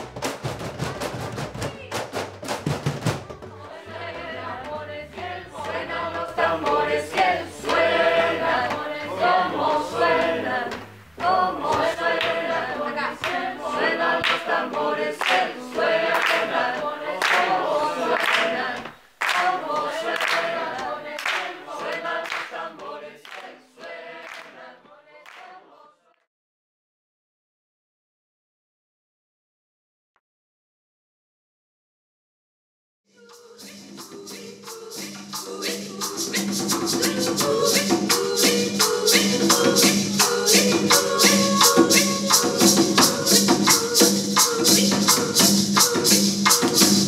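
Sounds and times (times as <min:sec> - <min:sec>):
group singing a cappella: 0:03.2 - 0:26.3, 0:33.1 - 0:47.0
sharp percussive hits: 0:33.5 - 0:47.0.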